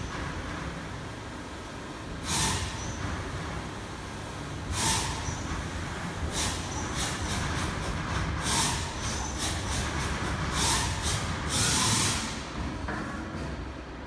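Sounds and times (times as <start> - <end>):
air hissing bursts: 2.1 - 12.6.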